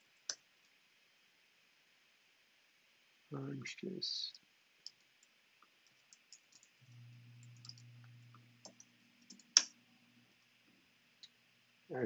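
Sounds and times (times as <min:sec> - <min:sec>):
low steady hum: 0:00.0 - 0:12.0
keyboard keystrokes: 0:07.4 - 0:07.8.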